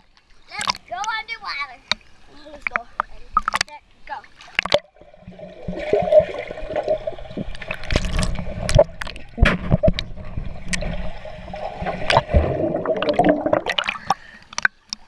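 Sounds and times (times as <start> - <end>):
water gurgling underwater: 4.6 - 14.7.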